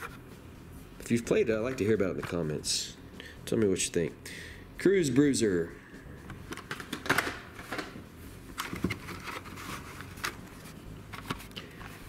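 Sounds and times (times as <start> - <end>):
plastic packaging rustling and clicking: 6.5 - 11.8.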